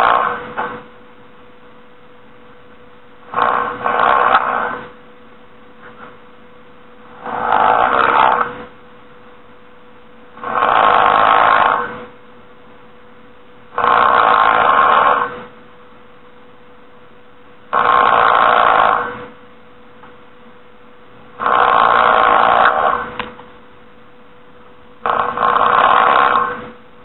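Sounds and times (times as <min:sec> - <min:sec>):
faint steady hum: 0:00.0 - 0:27.0
person snoring loudly: 0:03.3 - 0:04.8, 0:07.1 - 0:08.5, 0:10.4 - 0:11.9, 0:25.1 - 0:26.6.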